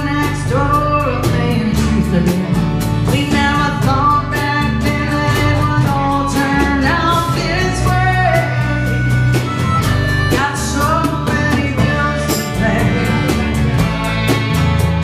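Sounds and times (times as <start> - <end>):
drum kit beat: 0.0 - 15.0
electric bass line: 0.0 - 15.0
strummed acoustic guitar: 0.0 - 15.0
harmonica: 7.2 - 15.0.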